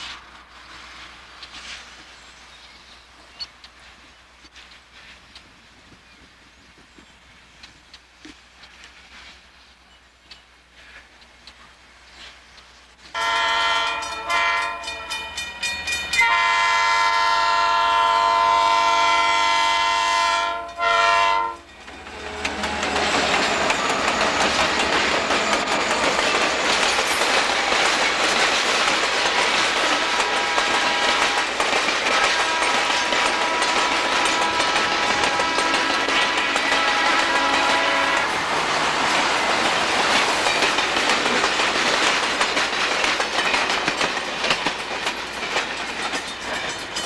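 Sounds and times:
locomotive engines rumbling: 0.0s - 47.0s
locomotive air horn blasts: 13.2s - 15.1s, 16.2s - 21.7s, 30.0s - 31.4s, 32.1s - 38.4s
train cars clattering over rails: 13.2s - 16.5s, 21.6s - 47.0s.

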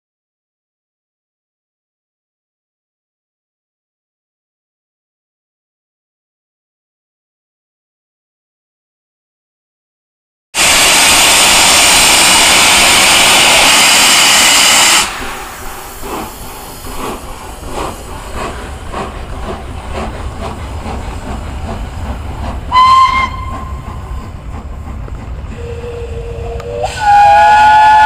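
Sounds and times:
high steam whistle: 10.6s - 15.7s, 22.7s - 23.9s, 25.5s - 28.0s
steam hissing: 10.6s - 28.0s
steam locomotive chuffing: 10.6s - 28.0s.

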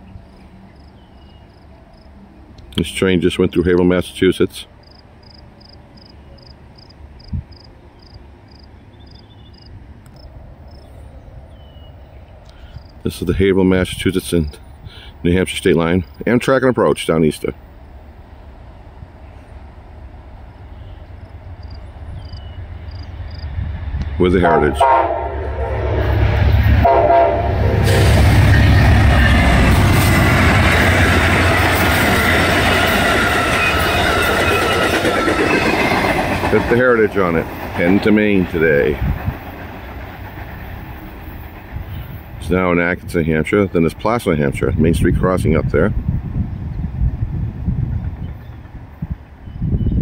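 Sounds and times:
insect chirping: 0.0s - 2.2s, 4.8s - 13.0s, 20.4s - 23.6s
diesel locomotive rumbling: 0.0s - 50.0s
locomotive horn toot: 24.4s - 29.7s
train wheels on rails: 25.4s - 43.1s.

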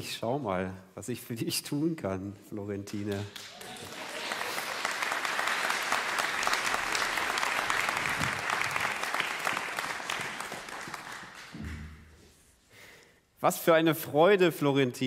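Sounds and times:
small audience applauding: 3.1s - 12.1s.

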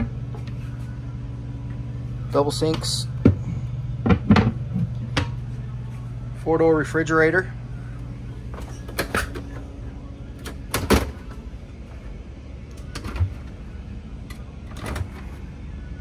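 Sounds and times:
steady low hum: 0.0s - 16.0s
refrigerator door clicks and knocks: 10.7s - 11.3s.

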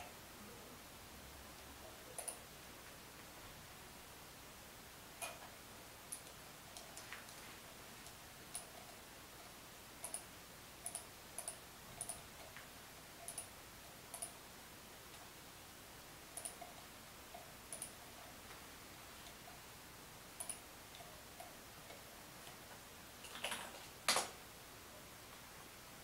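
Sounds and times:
computer mouse clicking: 1.6s - 2.4s, 6.1s - 7.4s, 8.0s - 13.5s, 14.1s - 14.4s, 16.4s - 18.1s, 20.4s - 22.6s.

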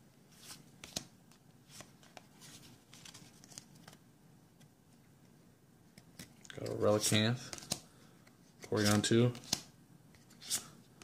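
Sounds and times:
trading cards handled: 0.4s - 4.0s, 5.9s - 10.8s.

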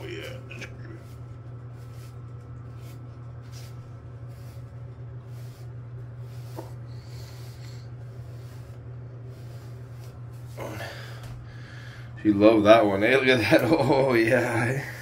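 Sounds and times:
brush swishing through fur: 1.0s - 10.7s.

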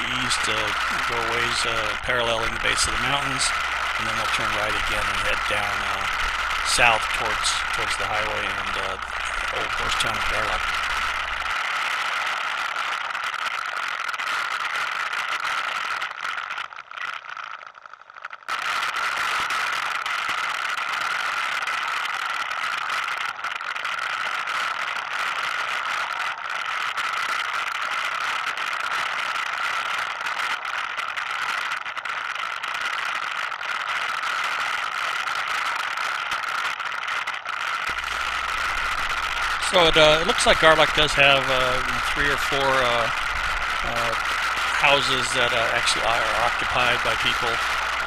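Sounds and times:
atv engine running: 0.0s - 11.5s, 37.9s - 48.0s.

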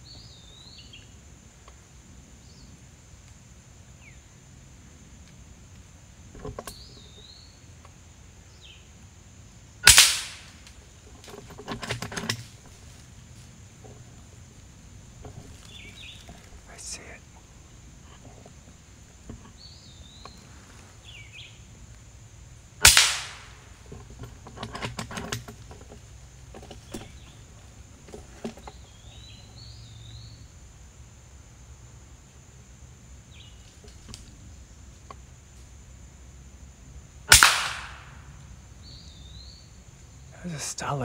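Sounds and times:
air rifle shots: 9.8s - 10.6s, 22.8s - 23.7s, 37.3s - 38.3s.

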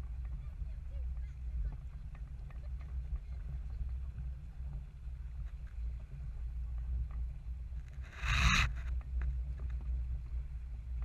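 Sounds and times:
water running along a hull: 0.0s - 8.1s
wind rumbling on microphone: 0.0s - 11.0s.

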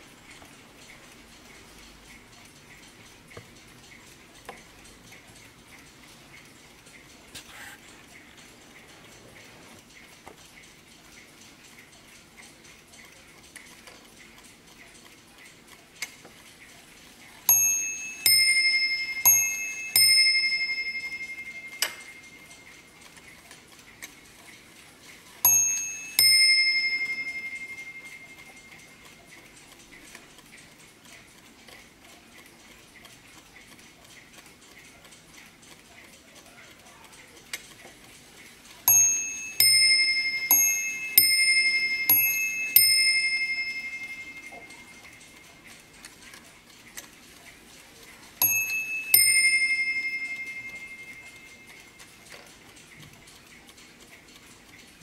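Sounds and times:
clock mechanism clicks: 0.0s - 55.0s
clock ticking: 0.0s - 55.0s
clock bells striking ding-dong: 17.5s - 22.9s, 25.4s - 29.1s, 38.8s - 45.6s, 48.4s - 52.4s.

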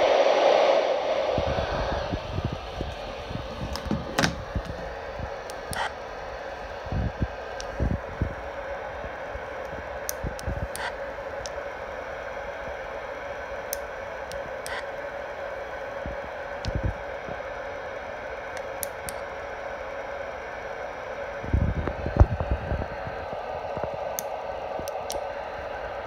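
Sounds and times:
radio static hiss: 1.0s - 26.0s.

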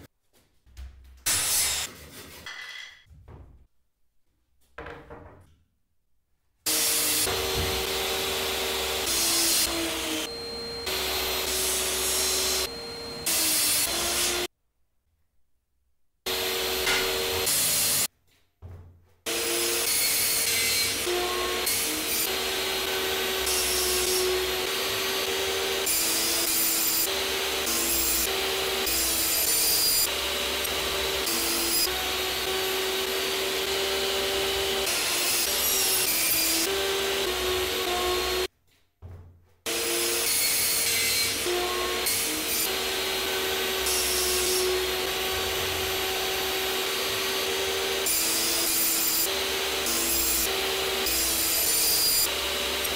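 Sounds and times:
table saw cutting plywood: 1.3s - 2.4s, 6.7s - 14.5s, 16.2s - 18.1s, 19.3s - 38.5s, 39.7s - 52.9s
dust extractor running: 7.3s - 9.2s, 44.7s - 48.1s.

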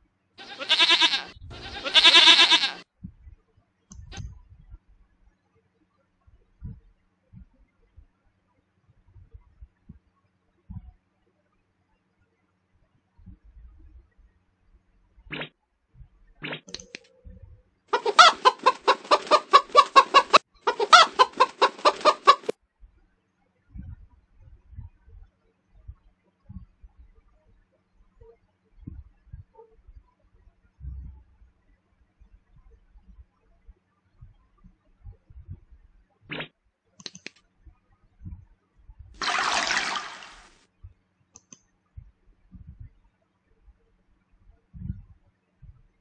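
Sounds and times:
chicken clucking: 0.4s - 2.8s, 17.9s - 22.5s
short clicks: 37.0s - 37.4s
rushing water sound effect: 39.2s - 40.6s.

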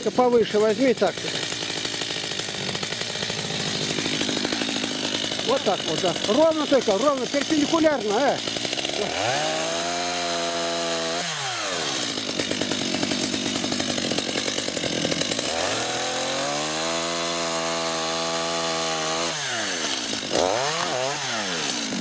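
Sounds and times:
chainsaw cutting tree trunk: 0.0s - 22.0s.

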